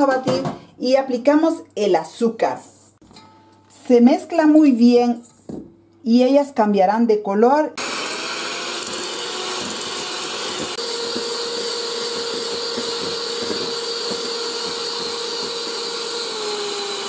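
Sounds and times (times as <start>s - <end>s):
electric hand mixer whisking: 7.8s - 17.0s.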